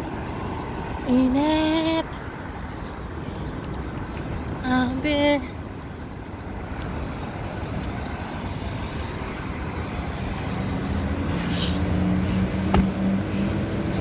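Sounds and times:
street traffic noise: 0.0 - 14.0
vehicle engine approaching: 6.6 - 14.0.

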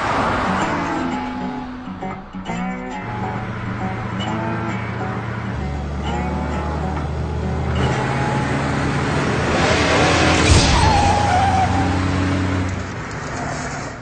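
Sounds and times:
cartoon car humming: 0.0 - 12.8
tyre squeal: 10.4 - 12.1.

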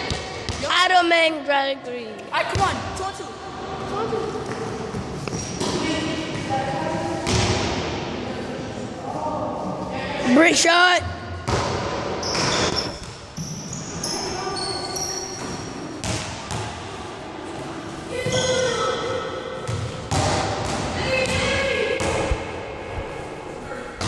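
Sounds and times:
sneaker squeaks: 4.4 - 6.0, 12.2 - 16.1, 18.1 - 19.9.

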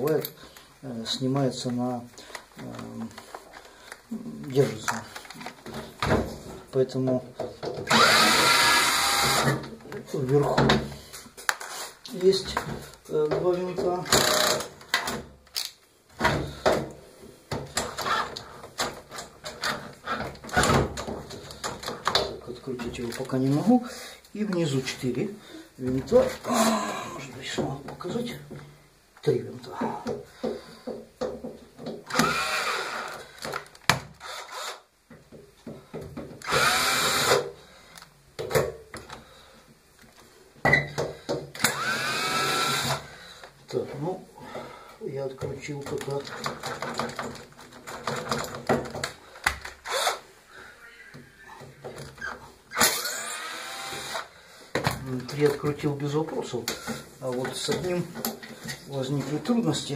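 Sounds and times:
cordless drill running: 7.9 - 9.6, 32.1 - 33.2, 34.2 - 34.8, 36.4 - 37.4, 41.6 - 43.0, 49.8 - 50.2, 52.8 - 54.3.

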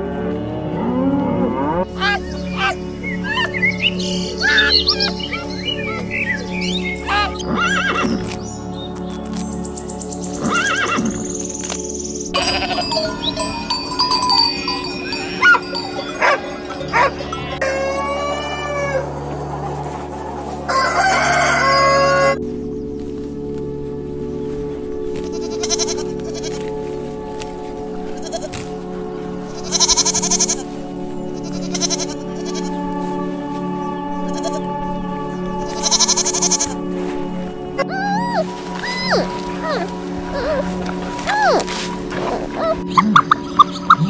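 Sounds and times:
background music: 0.0 - 44.0
horse neighing: 10.4 - 11.2, 12.4 - 19.0, 37.8 - 42.9
sheep bleating: 12.4 - 19.1, 25.3 - 26.6, 28.1 - 28.6, 29.6 - 30.6, 31.4 - 32.7, 34.2 - 34.7, 37.8 - 42.9.

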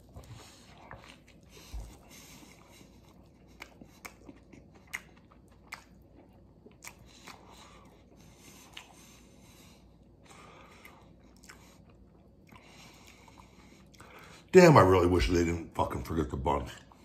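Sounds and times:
man chewing: 0.0 - 14.5.

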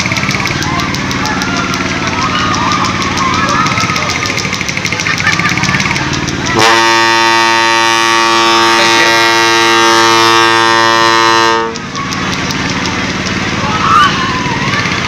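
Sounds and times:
crowd voices: 0.0 - 15.0
loud steady horn tone: 6.6 - 11.8.

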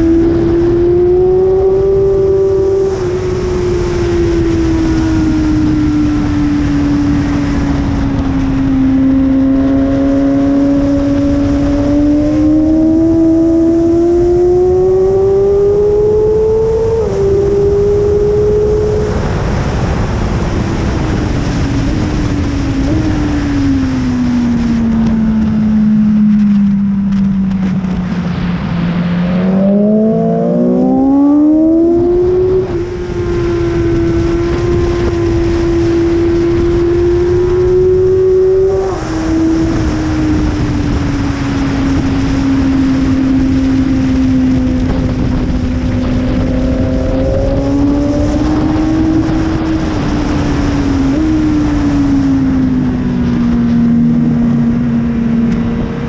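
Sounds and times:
motorcycle engine running hard: 0.0 - 56.0
wind rushing: 27.7 - 56.0.

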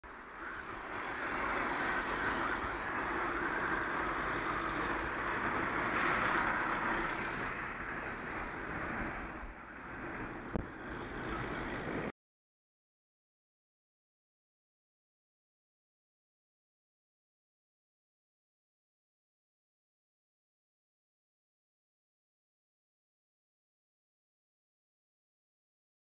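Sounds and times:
road traffic driving past: 0.0 - 12.1.

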